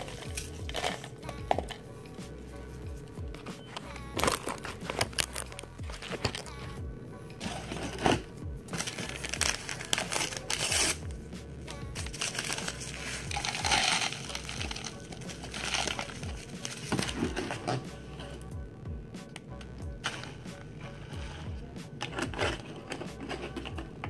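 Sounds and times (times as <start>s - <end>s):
crackers crunching: 0.0s - 1.8s, 3.3s - 6.6s, 7.4s - 18.5s, 19.3s - 24.0s
paper packet rustling: 0.0s - 1.8s, 3.3s - 6.5s, 7.4s - 11.0s, 12.0s - 17.9s, 20.0s - 20.4s, 22.0s - 23.8s
background music: 0.0s - 24.0s.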